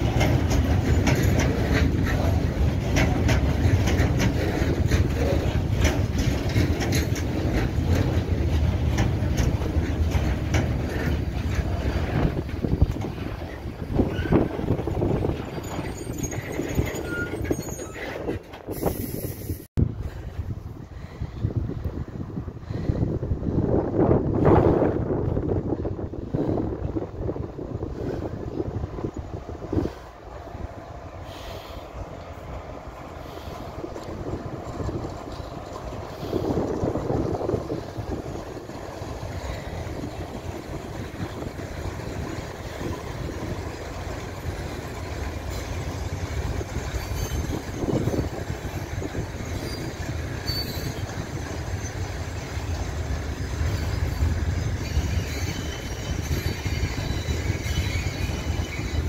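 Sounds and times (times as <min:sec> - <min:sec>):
train wheel squeal: 0:00.0 - 0:19.7, 0:33.1 - 0:59.0
freight train wheels rumbling: 0:00.0 - 0:59.0.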